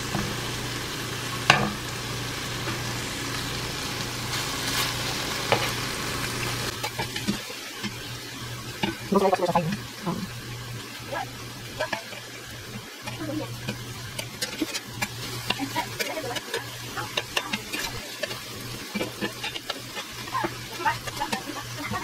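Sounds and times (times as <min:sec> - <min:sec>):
chicken sizzling on griddle: 0:00.0 - 0:22.0
metal spatula scraping pan: 0:13.0 - 0:22.0.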